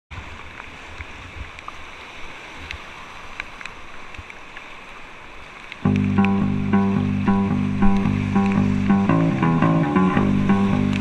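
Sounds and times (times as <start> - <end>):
small splashes and ticks: 0.2 - 6.9.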